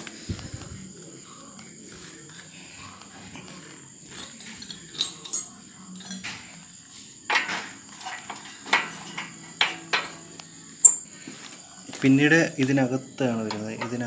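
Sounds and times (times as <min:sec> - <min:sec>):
spanner knocking on metal: 0:07.3 - 0:11.0.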